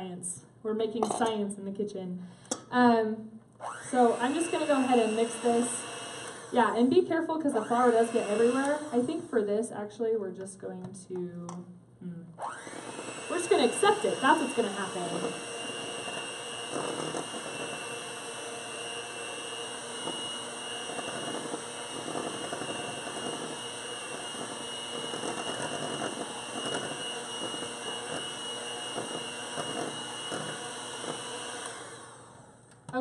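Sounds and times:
electric hand mixer running: 3.6 - 9.5, 12.4 - 32.6.

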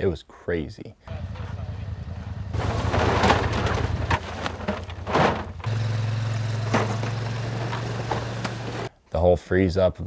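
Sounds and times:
vehicle engines humming: 1.1 - 8.9
rustling bursts: 2.5 - 8.9.

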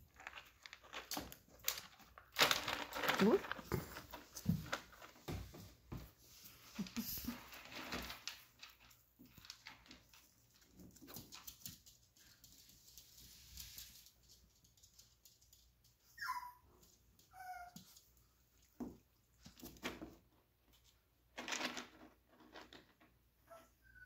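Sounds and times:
puppies scratching and rustling: 0.0 - 23.0
puppy yipping: 16.1 - 16.7, 17.3 - 17.8, 23.5 - 24.0
puppy whining: 16.1 - 17.8, 23.4 - 24.0.

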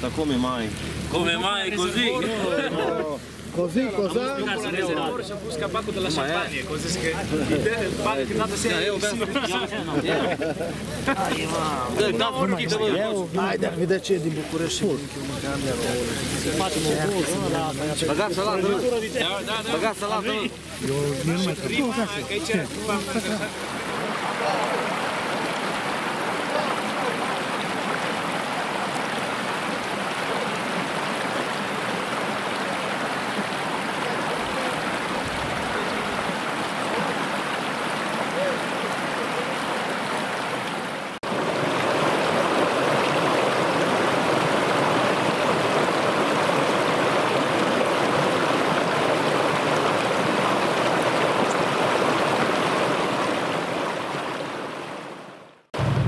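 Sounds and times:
stream running over stones: 0.0 - 56.0.

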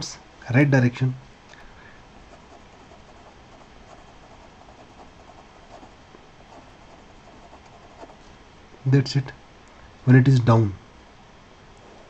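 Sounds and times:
low steady hiss: 0.0 - 12.0
pen writing on paper: 2.3 - 8.2.

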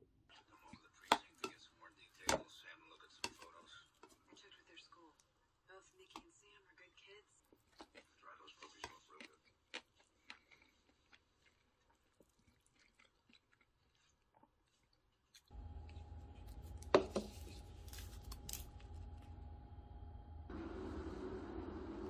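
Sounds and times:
quiet chewing: 0.3 - 19.4
room hum with thin tone: 14.8 - 22.0.

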